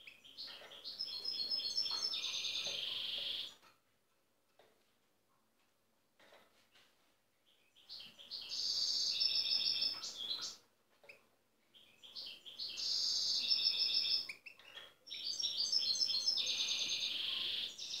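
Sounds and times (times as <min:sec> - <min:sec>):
finch singing: 0:00.0 - 0:03.6, 0:07.6 - 0:10.6, 0:11.7 - 0:18.0.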